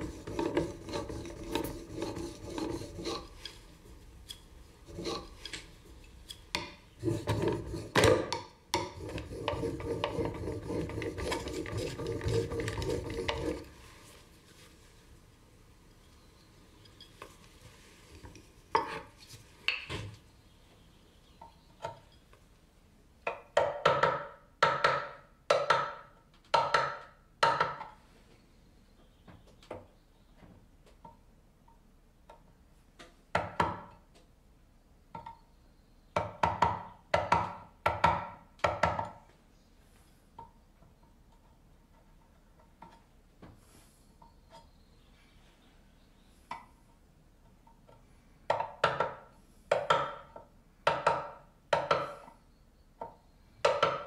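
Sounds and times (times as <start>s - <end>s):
hand tool strokes on wood: 0.0s - 6.4s, 8.9s - 14.8s.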